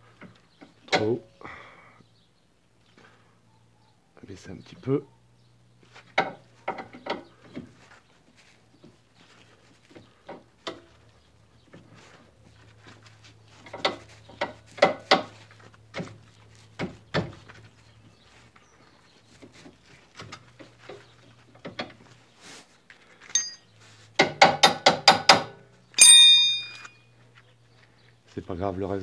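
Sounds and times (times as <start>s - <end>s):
ringing metal clink: 23.3s - 23.7s, 26.0s - 27.1s
metal clicks and knocks: 24.2s - 27.0s.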